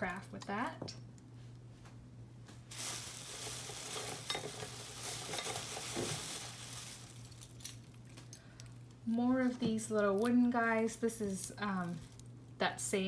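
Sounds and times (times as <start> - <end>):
steady low hum: 0.0 - 13.0
crinkling rustle of handling: 1.2 - 9.1, 11.2 - 12.6.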